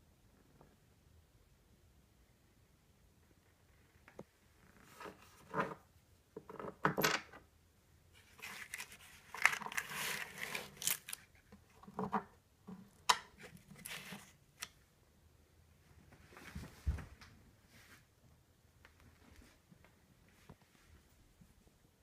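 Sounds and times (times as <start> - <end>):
scraping and rustling cardboard: 8.2 - 12.2.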